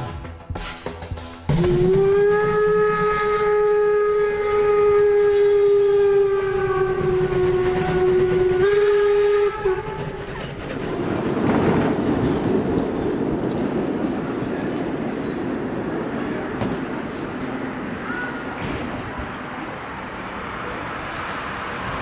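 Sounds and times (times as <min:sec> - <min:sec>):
train whistle blast: 0:01.6 - 0:10.0
steady rushing noise: 0:10.0 - 0:22.0.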